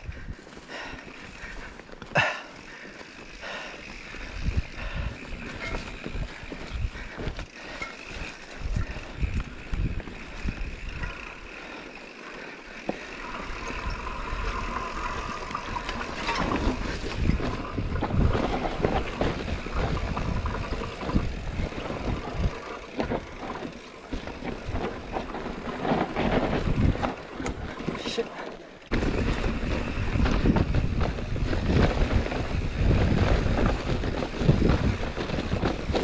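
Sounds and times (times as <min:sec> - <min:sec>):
bike knocking and rattling: 0:00.0 - 0:36.0
wind on microphone: 0:13.6 - 0:23.5, 0:24.2 - 0:27.8, 0:28.9 - 0:36.0.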